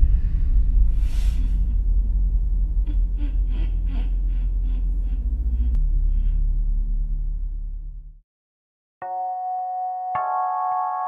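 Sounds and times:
low rumbling drone: 0.0s - 8.2s.

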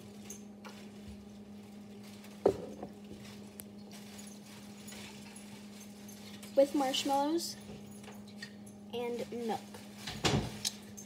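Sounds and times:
steady low hum: 0.0s - 11.0s
mug knocking on countertop: 2.4s - 2.9s.

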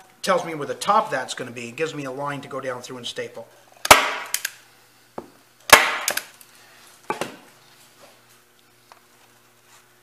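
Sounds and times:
staple gun snap: 3.9s - 4.6s, 5.7s - 6.3s.

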